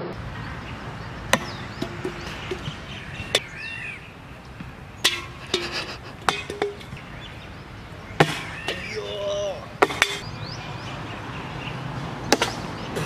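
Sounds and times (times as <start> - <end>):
bird chirping: 0.0 - 13.0
sharp ringing knocks: 1.3 - 3.5, 5.0 - 7.0.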